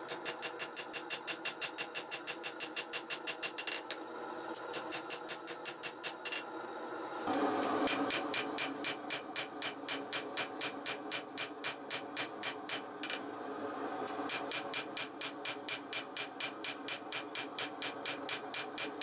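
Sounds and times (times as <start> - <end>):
hammer striking steel on anvil: 0.0 - 3.9.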